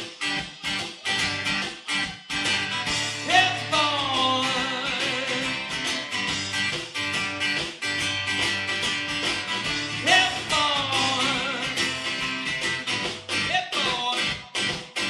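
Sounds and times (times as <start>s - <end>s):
acoustic guitar strumming: 0.0s - 15.0s
man singing: 3.2s - 5.9s, 10.0s - 12.2s, 13.4s - 15.0s.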